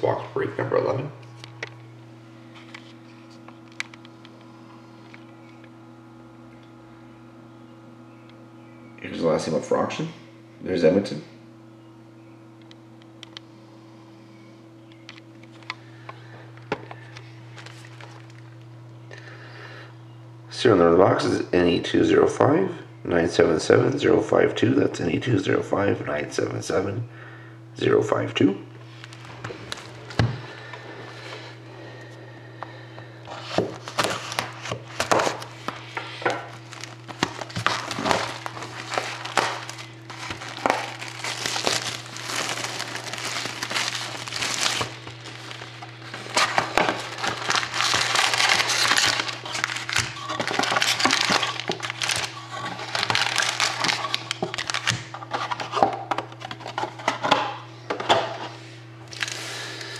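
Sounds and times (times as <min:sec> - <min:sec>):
steady low hum: 0:00.0 - 0:59.9
cellophane crinkling: 0:16.9 - 0:18.7, 0:33.3 - 0:56.8, 0:59.0 - 0:59.9.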